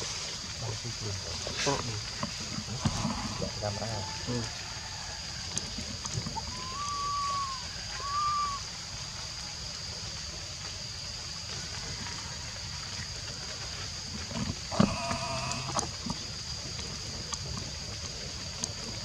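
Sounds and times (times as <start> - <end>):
high-pitched insect drone: 0.0 - 16.7
whistled calls: 6.1 - 9.4
voice-like call: 6.4 - 8.7, 14.7 - 15.9.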